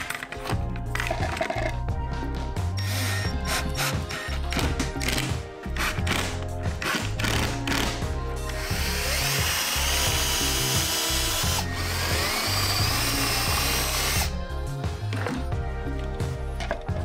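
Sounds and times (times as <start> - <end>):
cordless drill boring into wood: 8.5 - 14.3.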